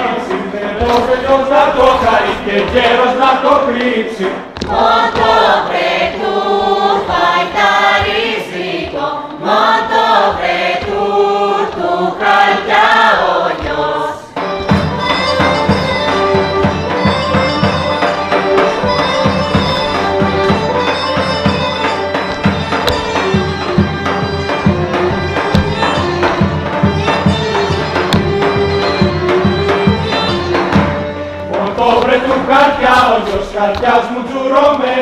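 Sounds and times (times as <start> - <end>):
group singing in unison: 0.0 - 14.4, 30.9 - 35.0
drum beats: 0.0 - 34.9
droning bagpipe: 14.4 - 31.5.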